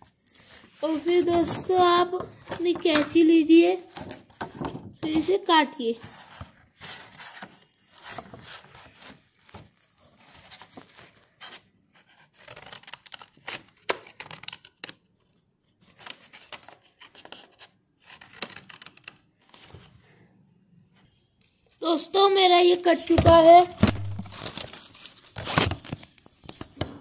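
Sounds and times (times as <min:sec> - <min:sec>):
scissors snipping paper: 0:00.8 - 0:04.2, 0:11.4 - 0:15.0, 0:15.9 - 0:19.2, 0:22.3 - 0:26.7.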